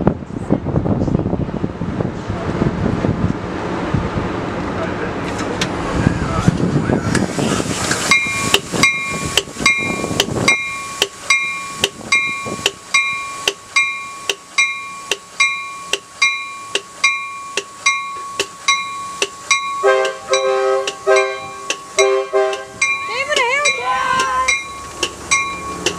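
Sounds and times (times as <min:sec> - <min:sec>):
rushing noise: 0:00.0 - 0:25.9
crossing bell ringing: 0:08.1 - 0:25.9
train horn: 0:19.8 - 0:22.8.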